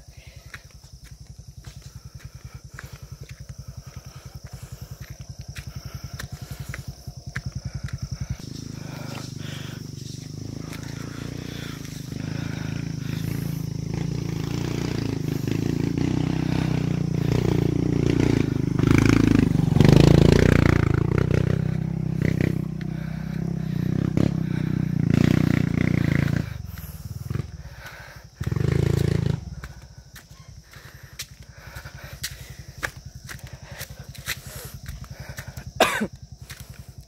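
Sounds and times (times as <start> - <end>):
motorcycle engine passing by: 1.1 - 35.6.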